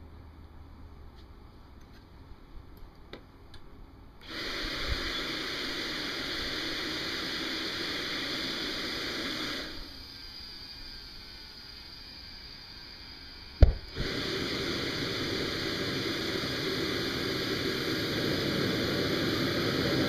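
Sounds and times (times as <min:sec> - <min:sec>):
blower air rushing hiss: 0:04.2 - 0:20.0.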